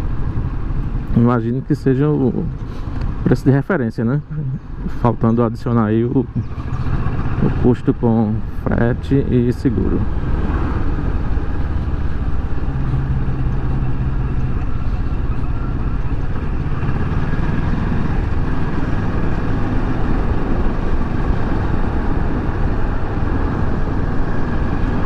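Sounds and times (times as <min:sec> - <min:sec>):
wind rumble on microphone: 0:06.2 - 0:25.0
motorcycle engine running: 0:10.1 - 0:25.0.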